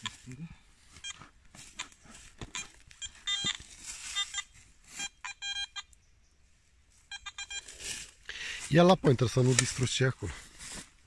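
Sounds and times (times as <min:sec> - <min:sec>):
metal detector beeping: 0:00.0 - 0:06.1, 0:06.9 - 0:07.9.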